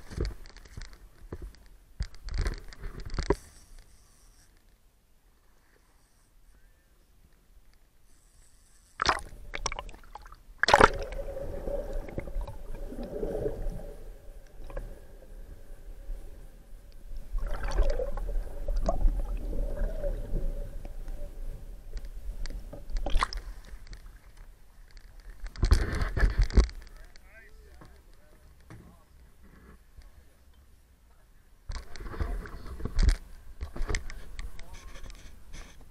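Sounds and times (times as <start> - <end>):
faint steady hum: 0.0 - 35.9
water sloshing and gurgling: 9.0 - 26.9.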